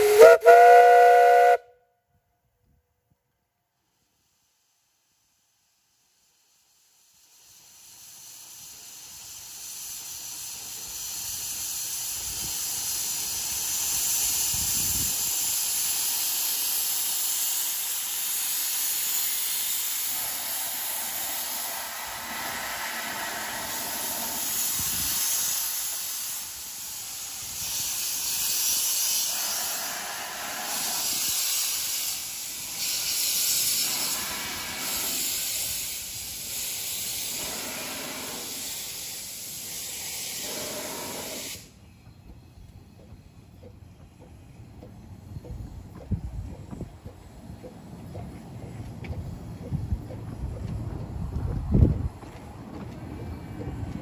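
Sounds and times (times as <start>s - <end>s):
steam locomotive hissing: 0.0s - 1.7s, 3.8s - 54.0s.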